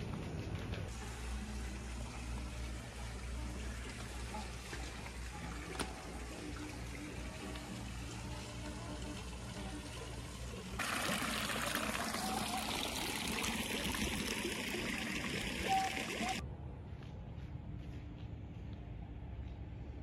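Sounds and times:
fountain water splashing: 1.6s - 16.4s.

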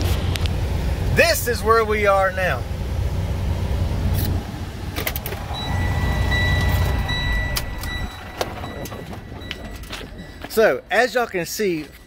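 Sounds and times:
diesel truck engine idling: 0.0s - 12.0s
steady high-pitched tone: 5.4s - 11.3s.

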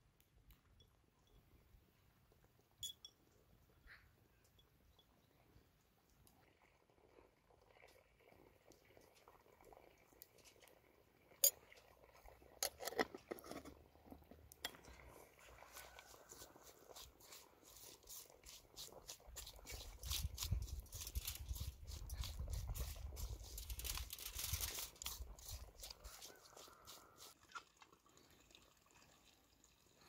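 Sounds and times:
metal spoon clinking on bowl: 2.8s - 3.2s
wet crunching of mixed vegetables: 15.4s - 27.6s.

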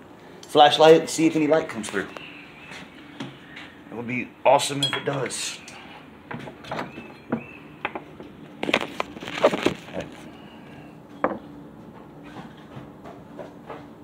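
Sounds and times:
faint steady hum: 0.0s - 14.0s
clattering handling sounds: 7.9s - 10.3s.

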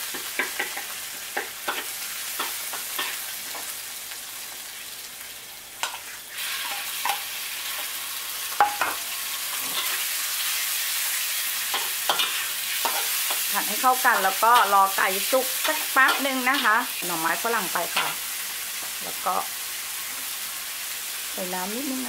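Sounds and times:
spatula scraping and clacking on wok: 0.0s - 3.8s, 5.8s - 7.9s, 8.5s - 10.6s, 11.4s - 19.0s
oil sizzling in a wok: 0.0s - 22.0s.

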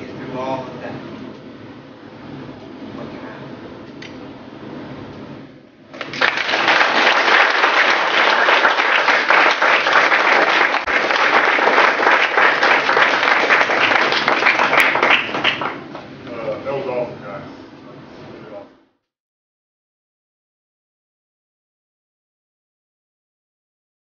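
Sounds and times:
audience applauding: 6.0s - 15.9s.

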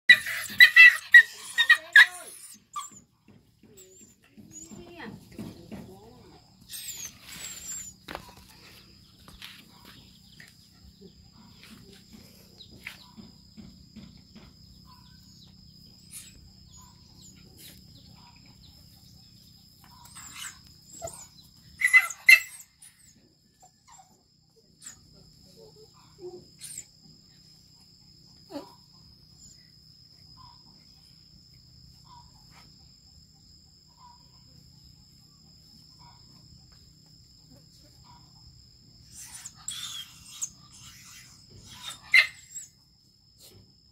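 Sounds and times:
sharp animal cry: 0.1s - 3.0s, 20.0s - 23.2s, 39.0s - 42.8s
animals scuffling: 3.7s - 10.6s.

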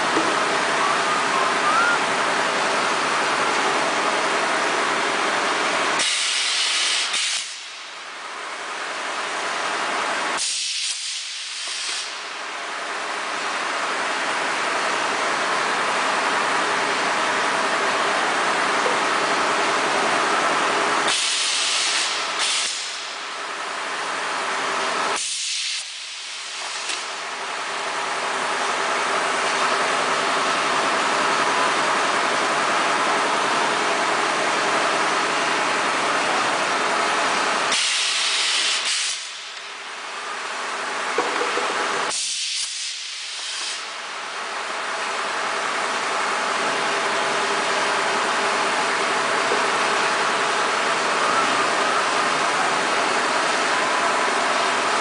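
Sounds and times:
machine mechanical hum and hiss: 0.0s - 55.0s
compressed air hiss bursts: 37.7s - 39.4s, 42.1s - 43.9s.

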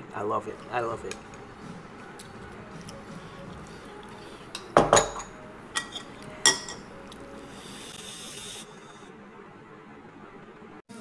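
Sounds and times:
cutlery clinking on dishes: 4.5s - 6.9s.

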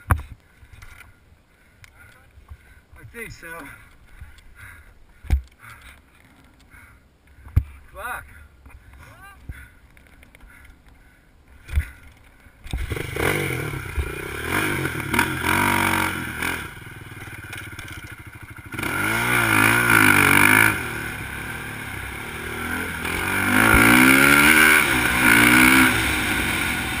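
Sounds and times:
quad engine revving hard: 12.8s - 17.5s, 18.6s - 27.0s.

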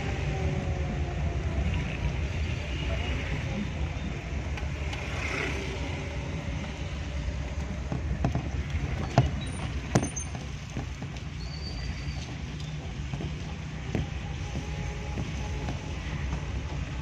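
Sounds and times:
vehicle rumbling on wet road: 0.0s - 17.0s
sharp knocks and rattles: 7.6s - 17.0s.

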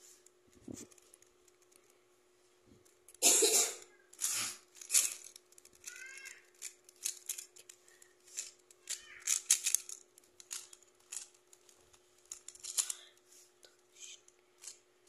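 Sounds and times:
puzzle cube clacking: 4.1s - 13.2s.

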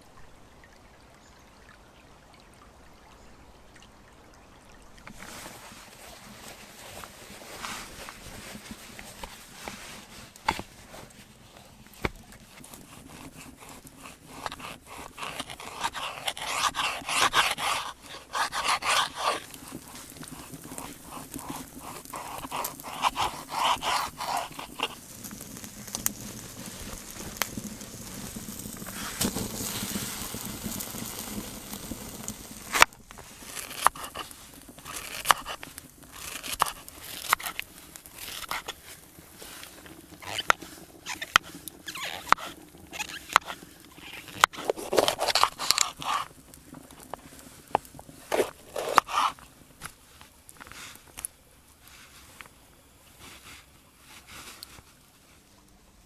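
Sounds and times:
soft rustling: 5.1s - 55.7s
knife slicing on wooden board: 12.0s - 25.0s, 33.5s - 38.8s, 40.2s - 46.3s, 48.3s - 49.4s.

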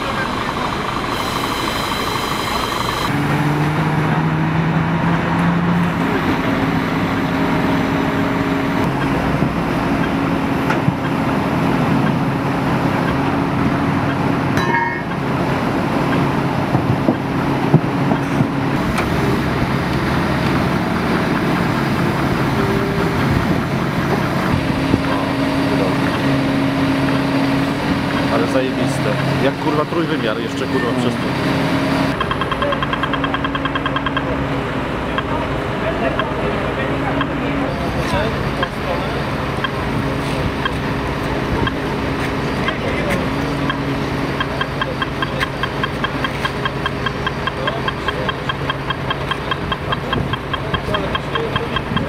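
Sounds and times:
diesel truck engines droning: 0.0s - 52.0s
sharp knocks: 32.1s - 34.3s.

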